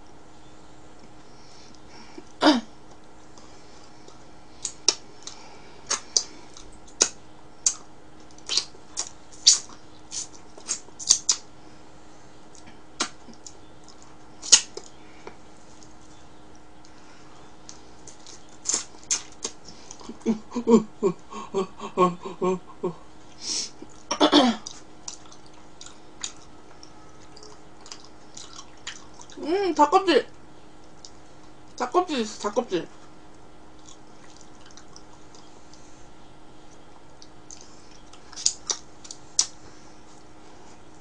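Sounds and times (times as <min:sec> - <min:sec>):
person chewing with mouth smacks: 0:01.7 - 0:11.5, 0:12.4 - 0:20.3, 0:23.2 - 0:29.4, 0:30.3 - 0:31.8, 0:33.0 - 0:35.8, 0:36.6 - 0:41.0.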